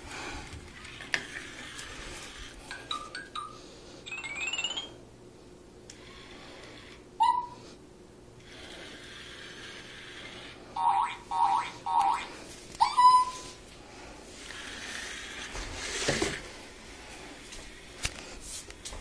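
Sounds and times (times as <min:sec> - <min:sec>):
toy electronic chirps: 0:02.8 - 0:05.0, 0:07.2 - 0:07.6, 0:10.8 - 0:13.6.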